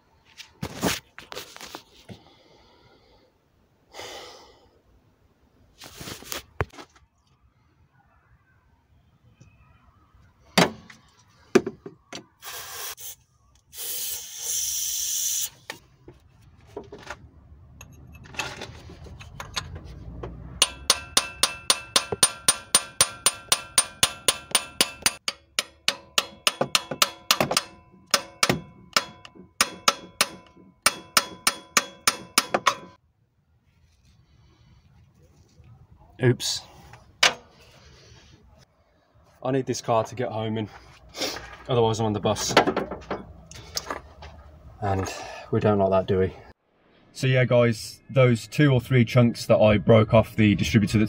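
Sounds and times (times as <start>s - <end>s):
aerosol spray hissing: 12.4s - 15.6s
hammer blows ringing on metal: 20.6s - 33.0s.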